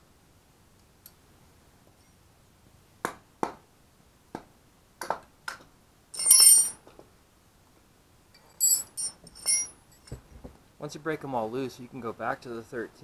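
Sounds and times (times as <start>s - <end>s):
ringing metal clang: 6.2s - 6.8s, 8.6s - 10.2s.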